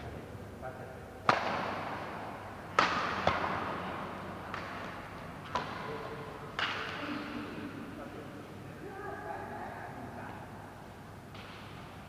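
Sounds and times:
rackets hitting shuttlecock: 0:01.2 - 0:07.1, 0:11.3 - 0:12.0.

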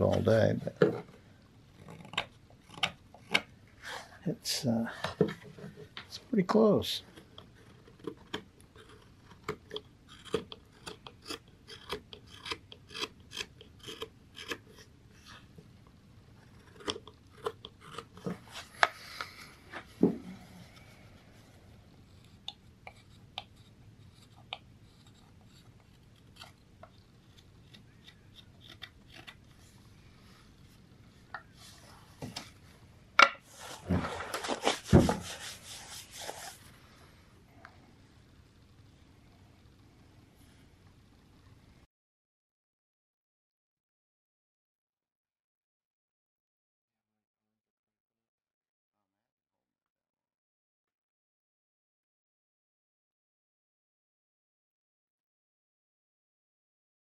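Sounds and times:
knife slicing wood: 0:08.2 - 0:14.8.

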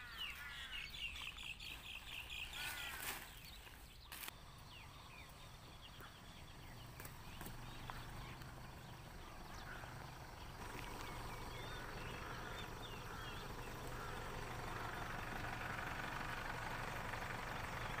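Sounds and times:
flock of birds calling: 0:00.0 - 0:18.0.

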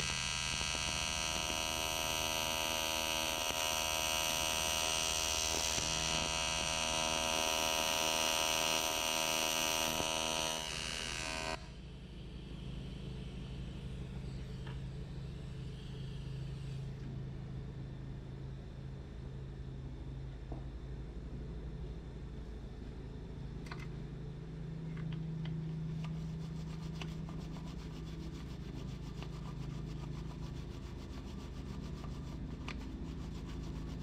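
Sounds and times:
welding arc buzzing: 0:00.0 - 0:11.8
low hum: 0:00.0 - 0:34.0.

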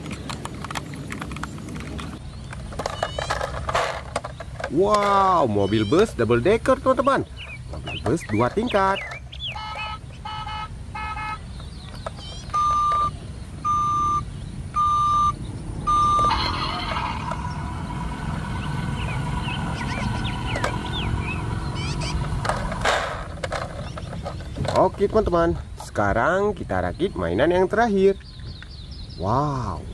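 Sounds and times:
electronic vehicle sound effect: 0:08.2 - 0:11.4, 0:12.1 - 0:24.8
toy short beeps: 0:09.5 - 0:11.4, 0:12.2 - 0:17.4.

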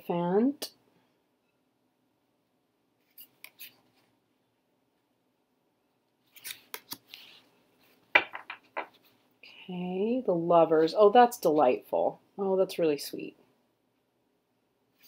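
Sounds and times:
cards swishing and clicking: 0:03.0 - 0:04.1, 0:06.3 - 0:07.5.

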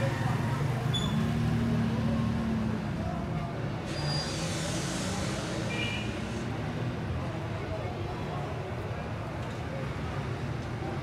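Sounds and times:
hiss: 0:03.9 - 0:06.5.

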